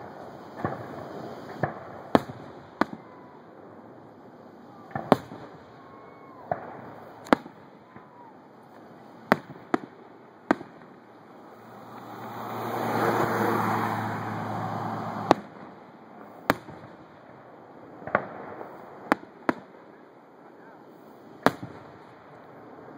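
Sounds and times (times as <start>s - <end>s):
broad rushing noise: 0.0s - 18.0s
firework shells bursting: 4.8s - 17.4s.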